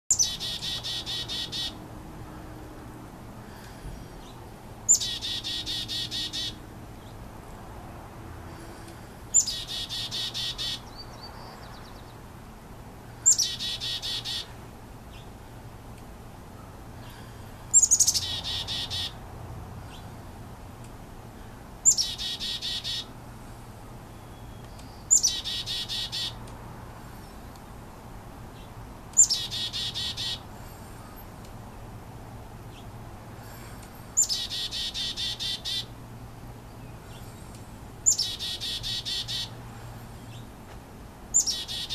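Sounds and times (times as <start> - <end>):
chickadee calling: 0.1 - 1.8, 4.2 - 6.6, 9.3 - 12.1, 13.2 - 15.3, 17.0 - 19.2, 21.8 - 23.1, 24.4 - 26.4, 28.6 - 31.2, 32.7 - 36.0, 38.0 - 39.6, 41.3 - 41.9.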